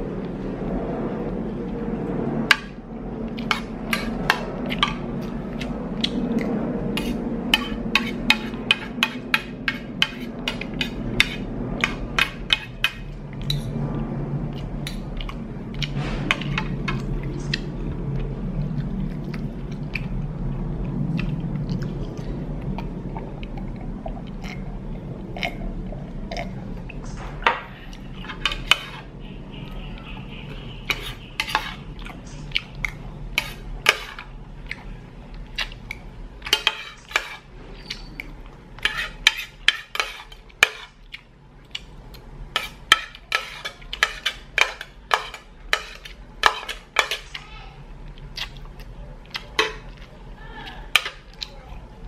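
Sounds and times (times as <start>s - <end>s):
low steady hum: 0.0s - 52.0s
cutlery scraping a ceramic plate: 7.0s - 13.8s, 27.5s - 29.1s, 30.8s - 31.9s, 33.3s - 34.3s, 36.4s - 38.2s, 38.8s - 41.0s, 42.5s - 47.4s.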